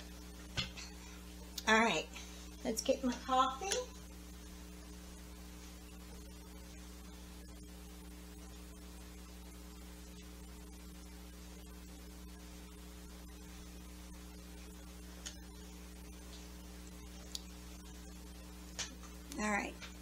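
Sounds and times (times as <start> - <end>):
electrical mains hum: 0.0 - 20.0
faint click: 17.3 - 17.5.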